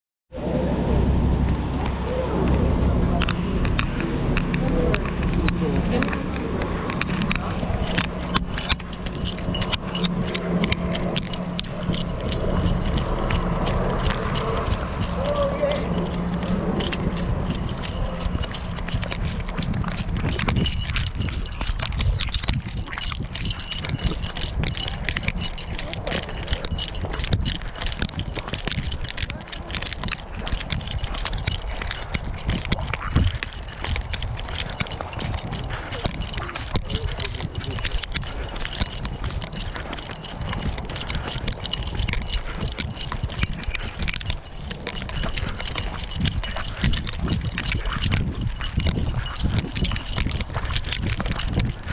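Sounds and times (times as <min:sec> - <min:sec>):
low rumble: 0:00.3 - 0:51.9
bus engines idling: 0:00.4 - 0:22.2
camera handling clicks and rattles: 0:03.2 - 0:51.9
footsteps on concrete: 0:03.2 - 0:51.9.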